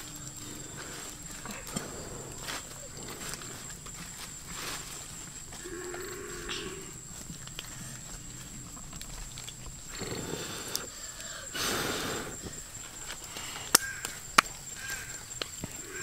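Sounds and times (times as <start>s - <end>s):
leaves and twigs rustling: 0.0s - 11.5s
twigs snapping: 13.1s - 15.7s.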